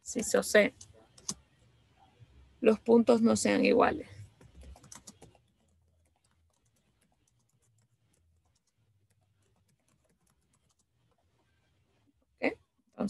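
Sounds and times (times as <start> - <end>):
typing on computer keyboard: 0.8 - 1.4, 4.3 - 11.2.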